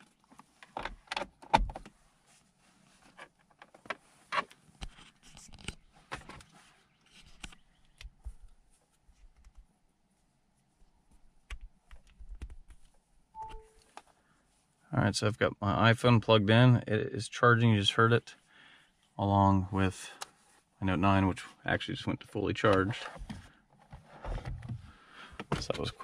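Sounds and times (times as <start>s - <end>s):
cable plug clicks and rattles: 3.2s - 6.5s, 11.5s - 13.0s.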